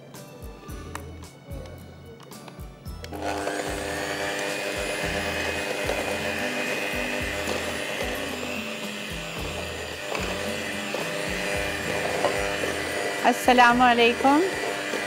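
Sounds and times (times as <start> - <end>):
electric hand beater whining: 3.1 - 15.0.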